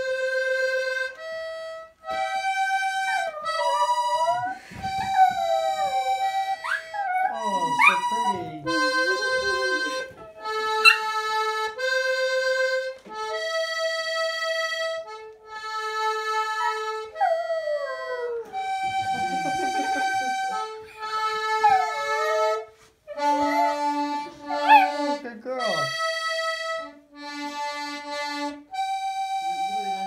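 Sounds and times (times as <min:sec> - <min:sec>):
button accordion playing chords: 0:00.0 - 0:17.6, 0:18.5 - 0:30.0.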